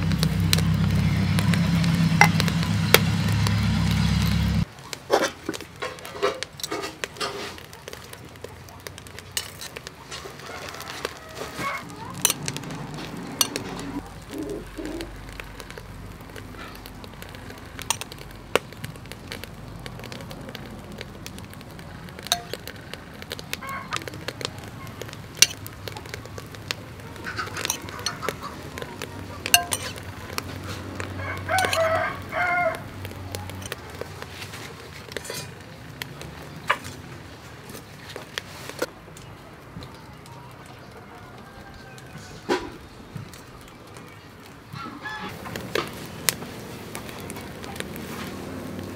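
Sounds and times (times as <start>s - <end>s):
rooster crowing: 10.2s - 12.2s, 23.6s - 24.8s, 31.0s - 33.0s, 40.9s - 42.5s.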